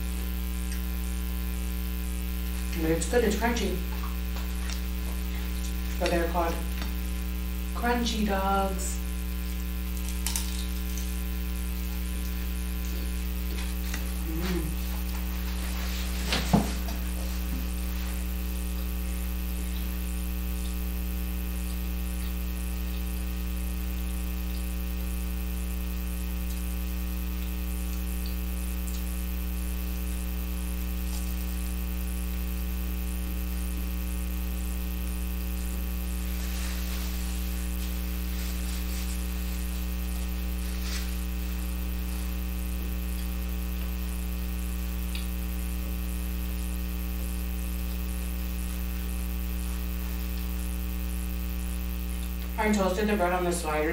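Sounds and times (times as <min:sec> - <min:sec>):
electrical mains hum: 0:00.0 - 0:53.9
napkin rustling: 0:13.6 - 0:18.3, 0:36.2 - 0:41.8.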